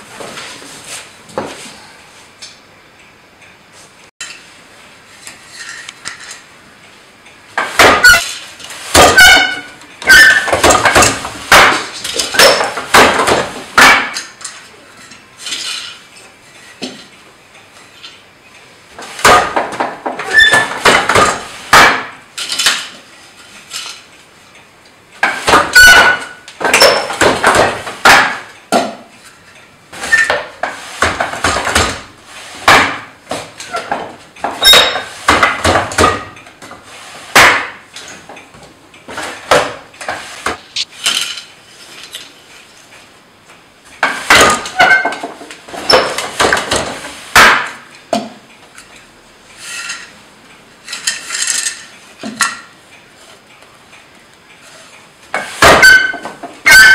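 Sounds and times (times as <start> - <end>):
wooden loom knocking and clattering: 7.6 - 14.6, 19.0 - 23.0, 25.2 - 29.2, 30.0 - 41.5, 44.0 - 48.4.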